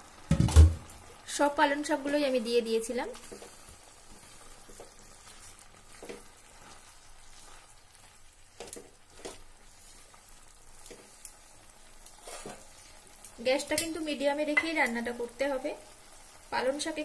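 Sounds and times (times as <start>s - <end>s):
vegetables sizzling in pan: 0.0s - 17.0s
spatula scraping pan: 3.1s - 13.2s.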